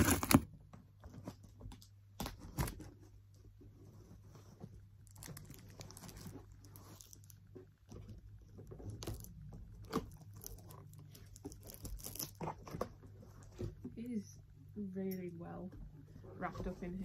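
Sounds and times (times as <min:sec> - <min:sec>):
plastic wrap and tape tearing: 0:00.0 - 0:00.4, 0:05.0 - 0:07.4, 0:08.9 - 0:12.8.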